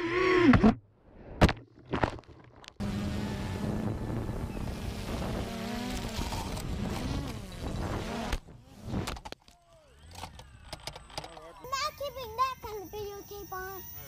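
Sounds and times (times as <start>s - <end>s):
drone propellers buzzing: 2.8s - 9.3s.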